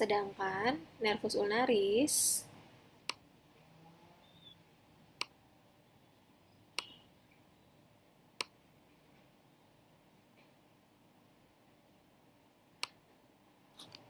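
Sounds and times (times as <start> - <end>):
sharp computer clicks: 6.8 - 7.0.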